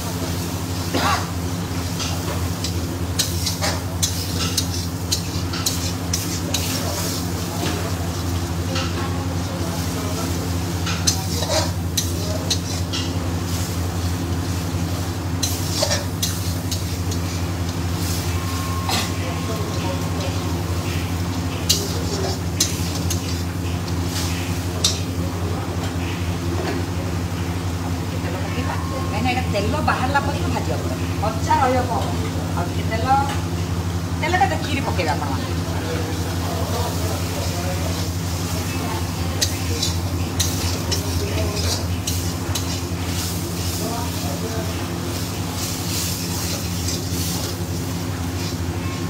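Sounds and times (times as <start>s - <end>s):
soft sizzle: 0.0s - 49.0s
steady low hum: 0.0s - 49.0s
metal spatula scraping a pan: 11.0s - 13.1s.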